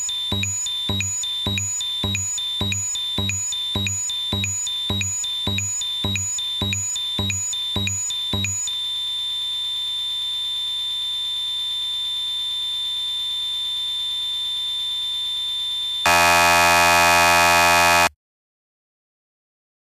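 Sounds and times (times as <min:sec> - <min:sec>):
harsh synthesizer buzzing: 0:16.1 - 0:18.1
high-pitched synthesizer tone: 0:16.1 - 0:18.1.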